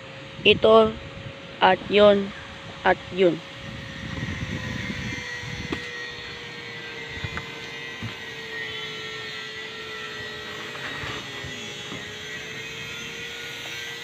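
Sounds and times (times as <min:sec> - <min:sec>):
steady engine drone: 0:00.0 - 0:14.0.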